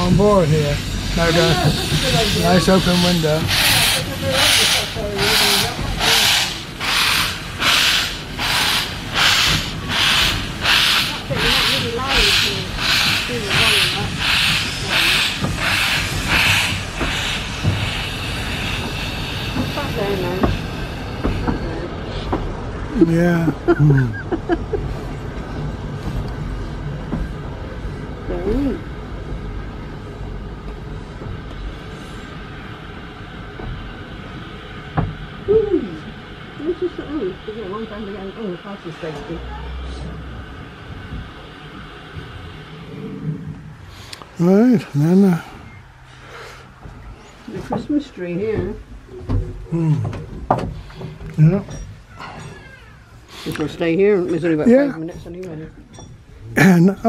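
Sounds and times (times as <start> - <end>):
steam locomotive chuffing: 0.0 - 57.0
train wheels rumbling on rails: 0.0 - 57.0
person speaking: 44.4 - 45.5.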